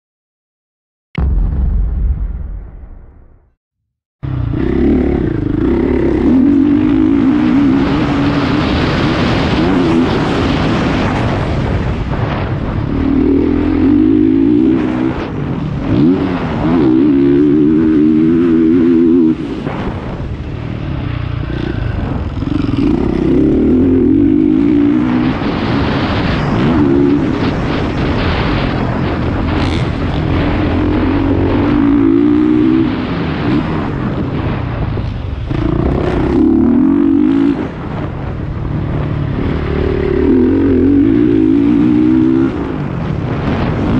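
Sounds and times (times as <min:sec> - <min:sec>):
motocross engine revving: 0:04.2 - 0:11.4, 0:20.8 - 0:34.6, 0:35.4 - 0:38.3, 0:38.9 - 0:43.9.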